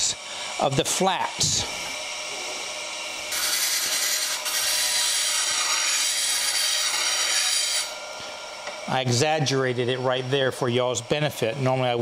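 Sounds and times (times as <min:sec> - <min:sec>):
bench grinder running: 0:00.0 - 0:12.0
steel tool grinding on wheel: 0:03.3 - 0:08.0.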